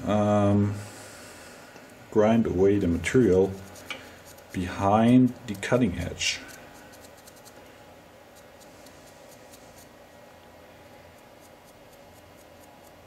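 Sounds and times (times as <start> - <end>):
low steady background: 0.0 - 13.0
marker pen scratching and dabbing: 2.7 - 7.6, 8.3 - 10.0, 11.2 - 13.0.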